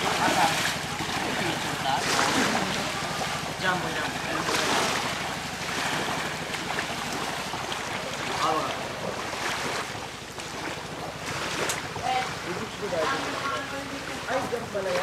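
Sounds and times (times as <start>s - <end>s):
surf rushing on beach: 0.0s - 9.9s.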